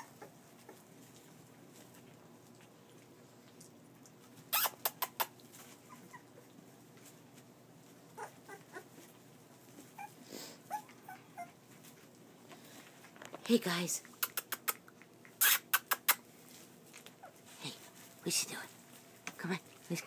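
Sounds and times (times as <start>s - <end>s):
puppies squeaking and whimpering: 0.0s - 0.9s, 4.5s - 6.6s, 8.1s - 9.1s, 9.8s - 11.7s, 14.2s - 16.3s.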